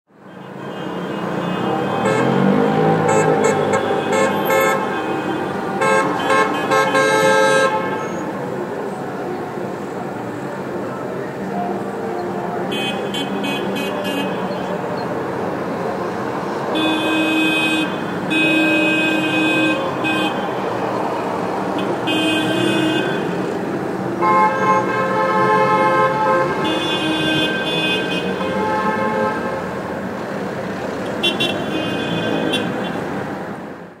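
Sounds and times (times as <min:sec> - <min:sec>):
traffic hum: 0:00.1 - 0:34.0
car horns honking: 0:00.2 - 0:08.3, 0:12.6 - 0:15.0, 0:16.7 - 0:29.8, 0:31.1 - 0:33.1.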